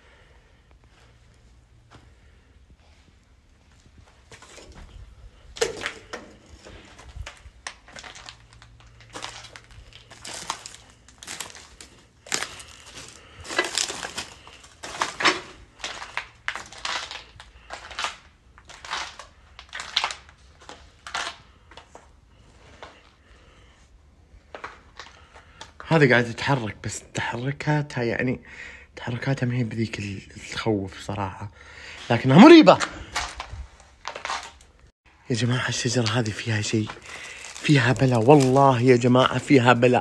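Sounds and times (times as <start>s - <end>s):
footsteps crunching over rubble: 0.9s - 23.2s, 35.7s - 40.0s.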